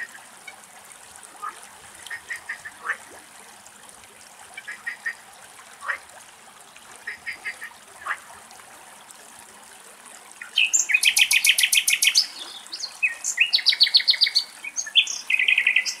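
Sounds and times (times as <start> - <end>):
frogs calling: 1.4 - 3.0
nightingale singing: 10.4 - 16.0.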